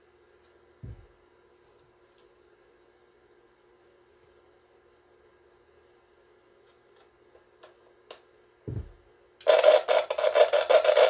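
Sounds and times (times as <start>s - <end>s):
faint hum: 0.0s - 11.0s
thump: 0.8s - 1.1s, 8.7s - 9.0s.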